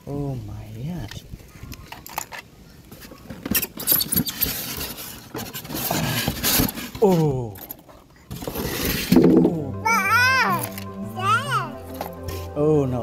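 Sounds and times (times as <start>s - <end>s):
plastic scraping against foam: 3.0s - 7.0s.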